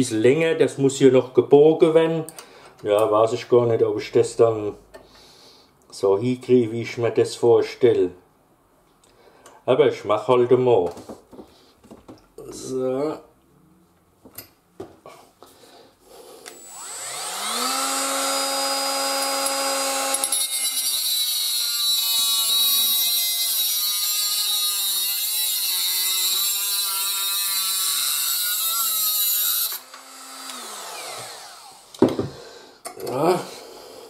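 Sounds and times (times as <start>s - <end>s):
angle grinder running: 16.5s - 32.0s
knock of grinder set down: 32.0s - 32.4s.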